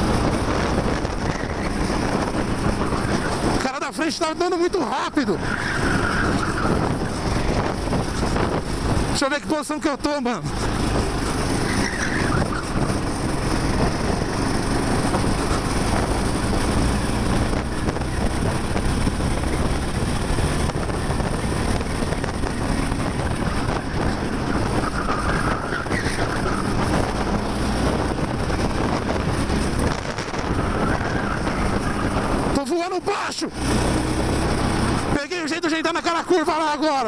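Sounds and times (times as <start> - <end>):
kart engine running: 0.0 - 9.2, 9.8 - 37.0
wind buffeting microphone: 0.0 - 9.2, 10.4 - 32.7, 33.5 - 35.3.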